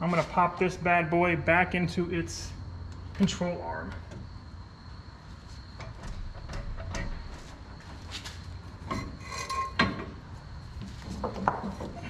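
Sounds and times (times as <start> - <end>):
steady low hum: 0.0 - 12.0
light metal clicks and knocks: 5.8 - 10.2
metal squeak or clank: 8.9 - 10.0.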